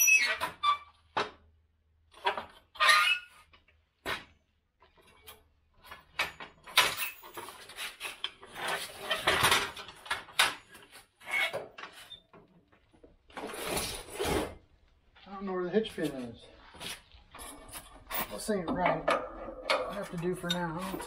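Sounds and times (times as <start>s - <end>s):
metal clanks and rattles: 4.9s - 13.8s, 17.3s - 21.0s.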